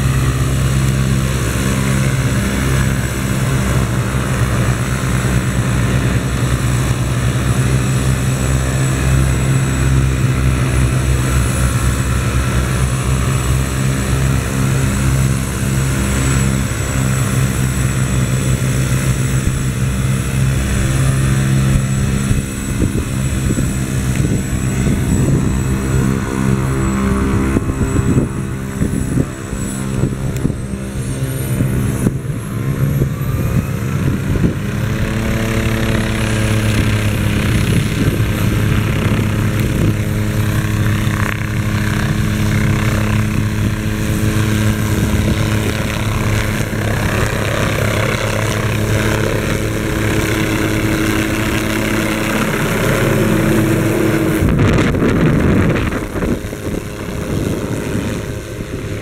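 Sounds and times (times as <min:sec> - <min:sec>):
helicopter turbine whine: 0:00.0 - 0:59.0
rotor blades beating: 0:00.0 - 0:59.0.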